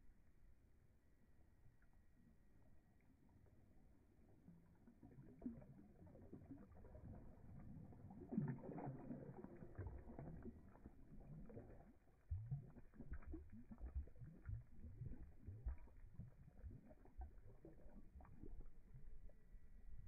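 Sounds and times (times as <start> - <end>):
dog blowing bubbles in water: 4.4 - 20.0.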